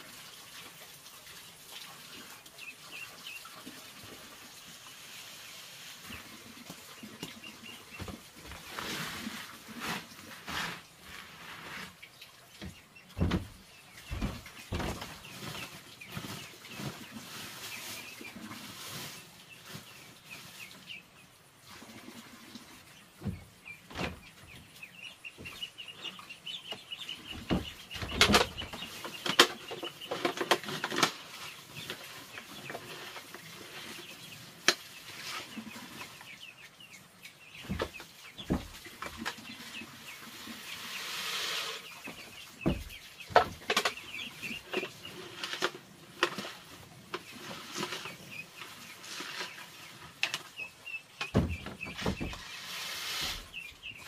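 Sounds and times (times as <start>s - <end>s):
poultry clucking: 6.0s - 9.5s, 22.1s - 54.0s
rustling hiss: 8.0s - 12.2s, 37.5s - 50.4s, 51.6s - 53.9s
sharp knocks and clatters: 12.6s - 16.9s, 26.7s - 31.2s, 37.6s - 39.6s, 42.1s - 48.1s, 51.2s - 52.6s.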